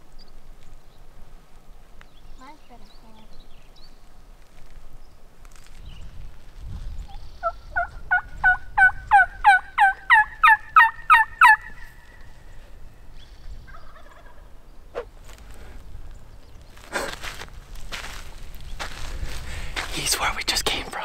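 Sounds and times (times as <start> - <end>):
turkey call yelps: 7.4 - 12.2, 13.7 - 15.1.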